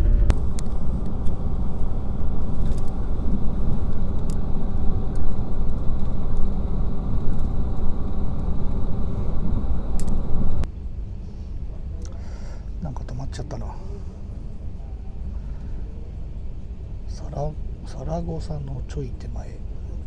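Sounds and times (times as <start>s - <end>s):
train rumbling on rails: 0.0s - 10.7s.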